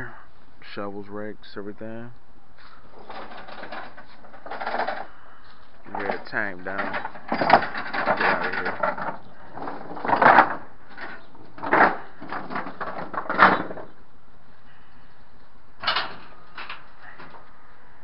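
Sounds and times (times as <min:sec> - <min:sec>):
faint background noise: 0:00.0 - 0:18.0
knocks and clunks: 0:02.9 - 0:05.1, 0:05.8 - 0:14.0, 0:15.8 - 0:17.5.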